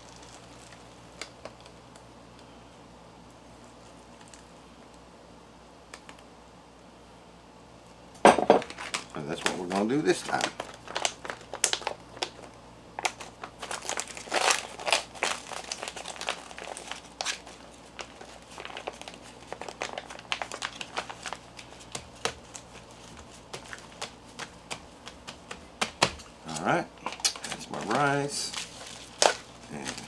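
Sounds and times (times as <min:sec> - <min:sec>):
foil pouches crinkling: 0:00.0 - 0:01.7, 0:08.7 - 0:30.0.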